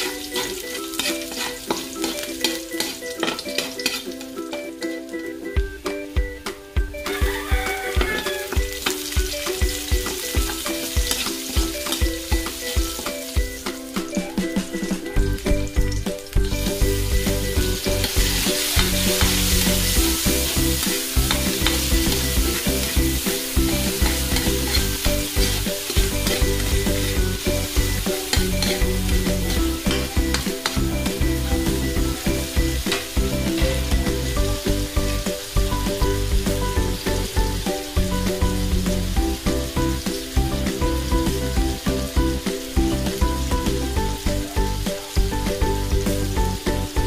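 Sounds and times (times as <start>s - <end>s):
metal spatula scraping wok: 0.0s - 4.9s, 9.7s - 13.3s, 16.6s - 35.3s
vegetables sizzling in hot oil: 0.0s - 47.0s.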